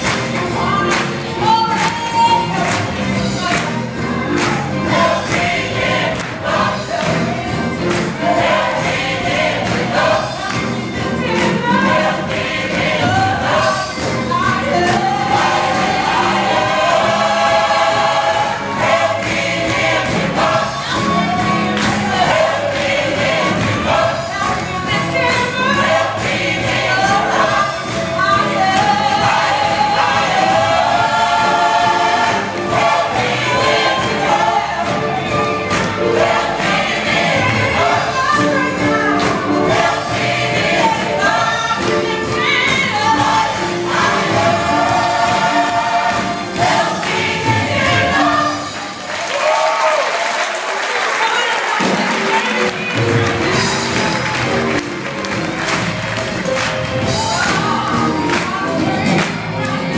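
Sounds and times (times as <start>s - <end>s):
church choir singing: 0.0s - 59.9s.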